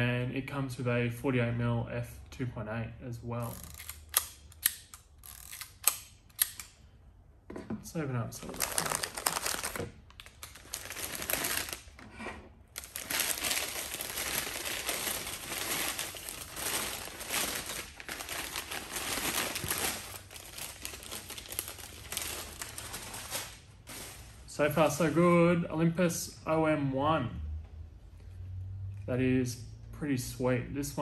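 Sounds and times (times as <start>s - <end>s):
newspaper crinkling and rustling: 8.4s - 12.0s, 12.8s - 24.5s.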